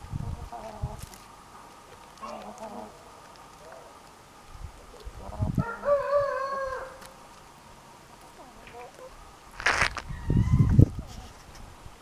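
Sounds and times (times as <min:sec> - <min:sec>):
soft hen clucks: 0:04.9 - 0:07.1, 0:08.3 - 0:09.2
rooster crowing: 0:05.6 - 0:07.1.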